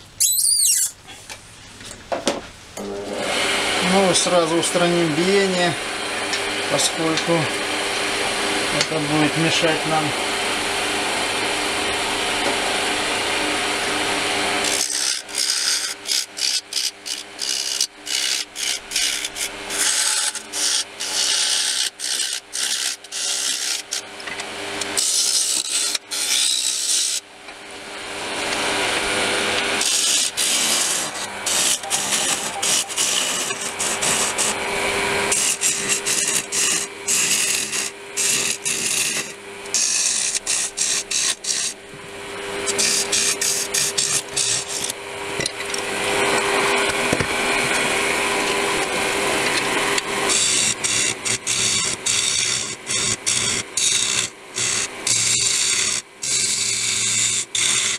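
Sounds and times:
wood lathe humming: 2.8s - 57.9s
turning tool scraping wood: 14.4s - 27.2s, 28.4s - 41.8s, 42.6s - 57.9s.

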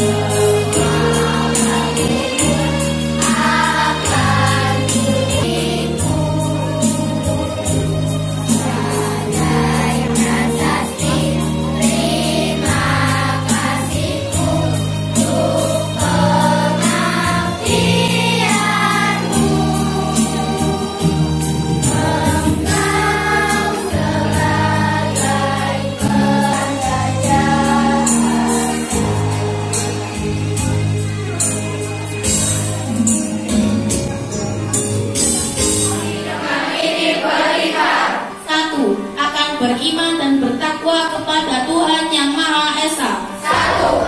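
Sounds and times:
choir singing: 0.0s - 30.8s, 35.8s - 38.5s, 43.4s - 44.0s.

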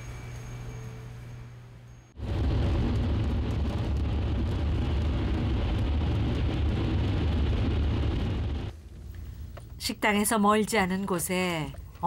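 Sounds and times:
car engine and tyres rumbling: 2.2s - 8.9s.

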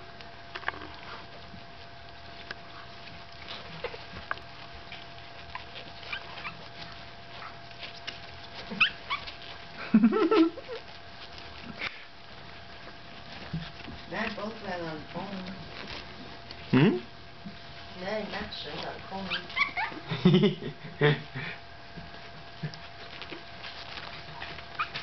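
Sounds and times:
puppies whimpering and squeaking: 2.3s - 16.7s, 17.7s - 20.2s, 22.2s - 25.0s.

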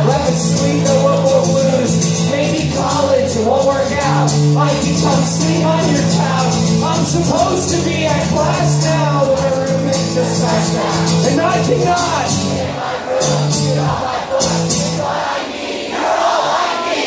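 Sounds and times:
man singing: 0.0s - 15.0s
strummed acoustic guitar: 0.0s - 15.1s
crowd voices: 0.0s - 17.0s.

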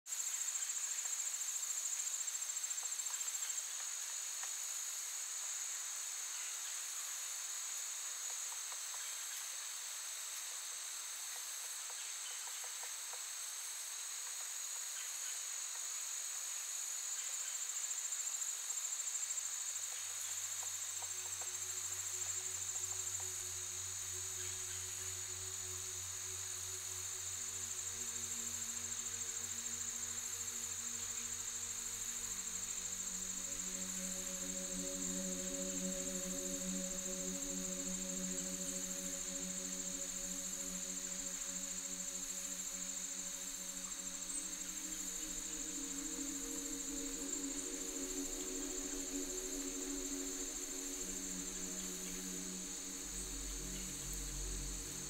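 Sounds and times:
insects chirring: 0.1s - 55.0s
low steady tones: 20.2s - 55.0s.

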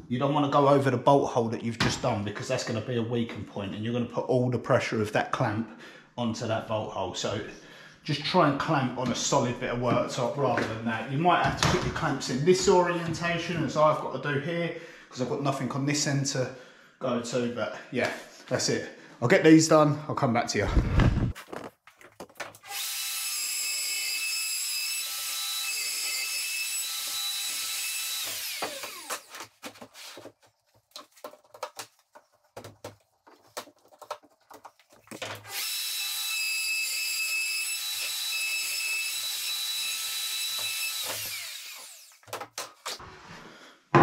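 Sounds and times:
router whining: 22.6s - 29.4s, 35.2s - 42.4s.

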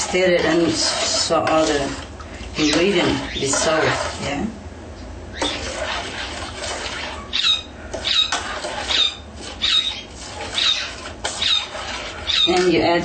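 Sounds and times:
spoon scraping ceramic bowl: 2.6s - 4.4s, 5.4s - 12.8s.

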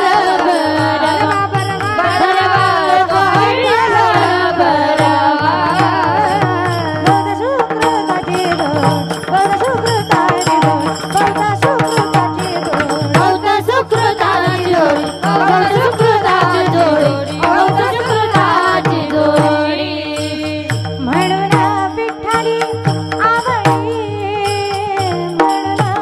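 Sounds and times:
regular drum beats: 0.0s - 26.0s
woman singing devotional melody: 0.0s - 26.0s
steady drone: 0.3s - 7.8s.

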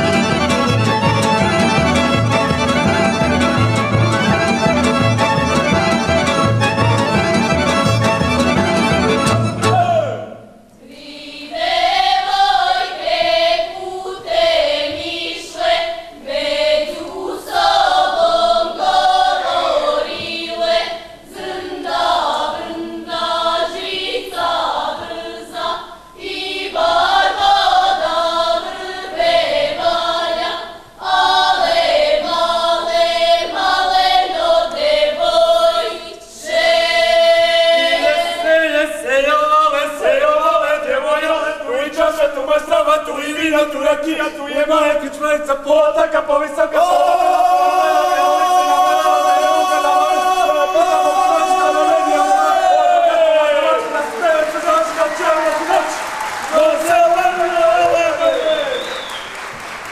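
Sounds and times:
women singing unaccompanied folk song: 10.8s - 38.5s.

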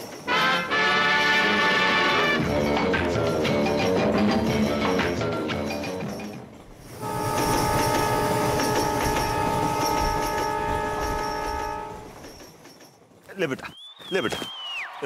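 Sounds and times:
train rumbling on track: 0.0s - 13.7s
locomotive horn blast: 0.3s - 2.4s, 6.9s - 12.2s.

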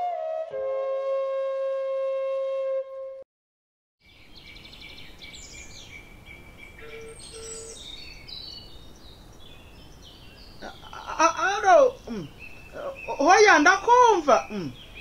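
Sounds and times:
flute tune: 0.0s - 3.2s
birds chirping and singing: 4.0s - 15.0s
faint outdoor background: 4.0s - 15.0s.

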